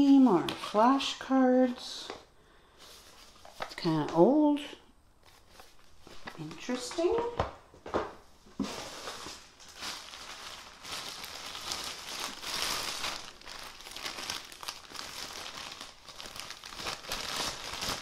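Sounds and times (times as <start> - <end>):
plastic wrapping crinkling: 8.5 - 18.0.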